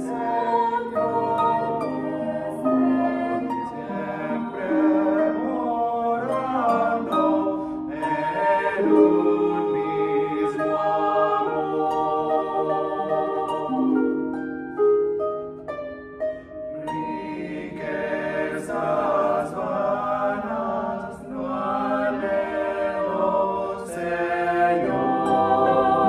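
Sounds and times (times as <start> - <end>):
vocal quartet singing a hymn: 0.0 - 14.4, 16.7 - 26.0
harp plucked notes: 0.0 - 18.9.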